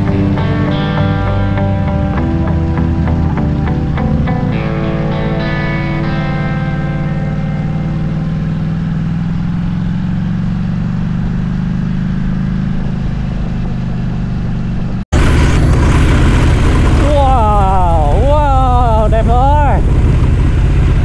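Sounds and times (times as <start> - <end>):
motorcycle engine humming: 0.0 - 21.0.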